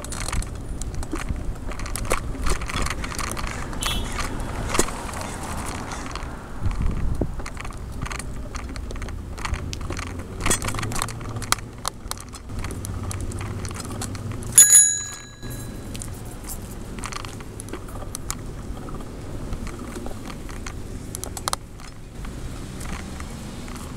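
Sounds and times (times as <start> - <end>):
bike rattling over rough pavement: 0.0 - 23.9
bicycle bell ringing: 14.6 - 16.0.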